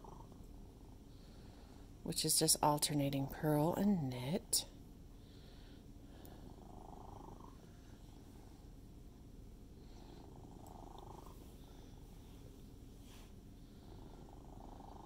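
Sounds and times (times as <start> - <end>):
cat purring: 0.0 - 1.8, 5.2 - 8.7, 9.7 - 15.0.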